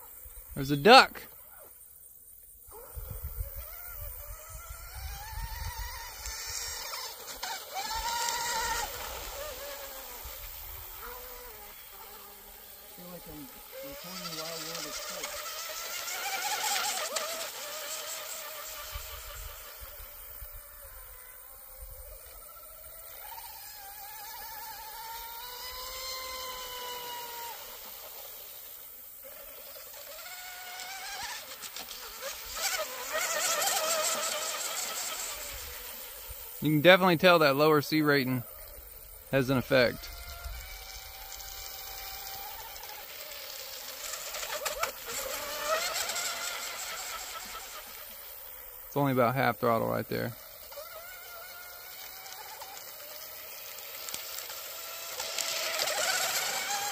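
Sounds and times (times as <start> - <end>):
electric motor whining: 2.5 - 56.9
low wind rumble on microphone: 2.9 - 5.9.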